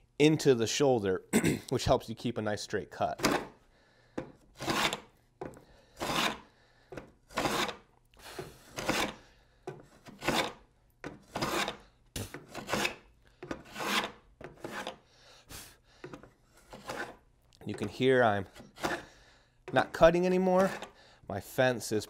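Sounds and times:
wooden plane shaving strokes: 4.6s - 5.1s, 6.0s - 6.5s, 7.3s - 9.2s, 9.9s - 10.6s, 11.2s - 11.8s, 12.4s - 13.0s, 13.6s - 15.0s, 16.5s - 17.2s, 18.5s - 19.1s, 20.6s - 21.0s.

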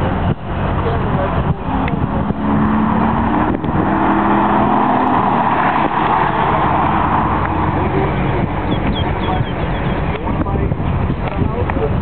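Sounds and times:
car engine driving past: 0.0s - 10.2s.

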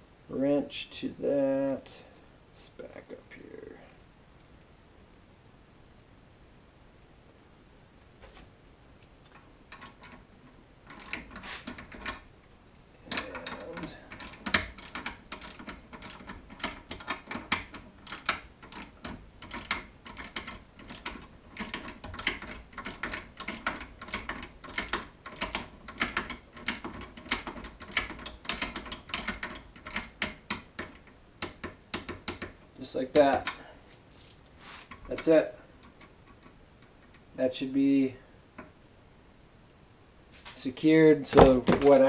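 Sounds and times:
socket ratchet clicking: 10.9s - 12.2s, 13.1s - 32.5s.

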